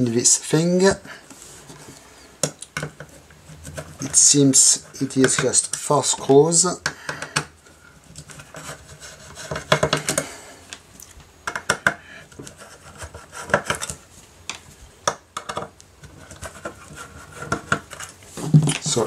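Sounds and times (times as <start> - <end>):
fingers scratching metal case: 2.8 - 5.7.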